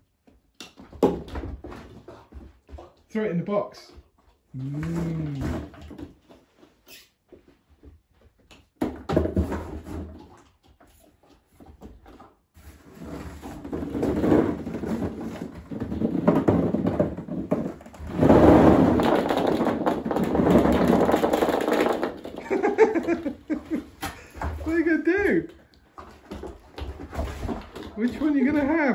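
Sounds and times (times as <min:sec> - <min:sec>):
plastic balls clattering and bouncing: 0:00.0 - 0:07.1, 0:08.4 - 0:28.9
plastic balls rattling in a box: 0:13.0 - 0:28.9.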